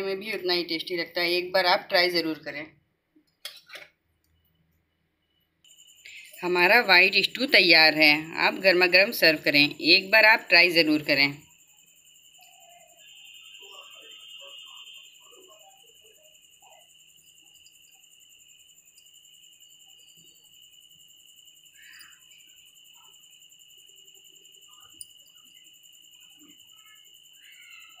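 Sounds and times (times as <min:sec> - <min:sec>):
steady high-pitched tone: 0:05.7 - 0:28.0.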